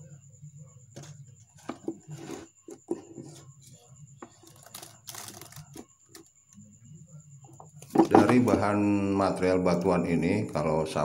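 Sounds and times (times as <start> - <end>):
plastic containers knocking: 7.6 - 8.7.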